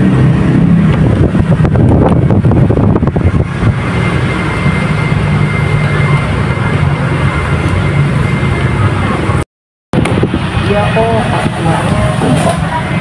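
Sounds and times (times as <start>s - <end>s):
low engine hum: 0.0s - 9.4s.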